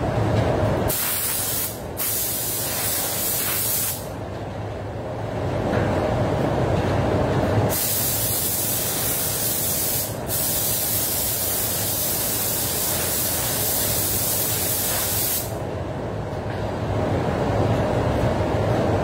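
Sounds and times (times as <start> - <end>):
ventilation low rumble: 0.0 - 19.0
spray gun hissing: 0.9 - 4.1, 7.7 - 15.6.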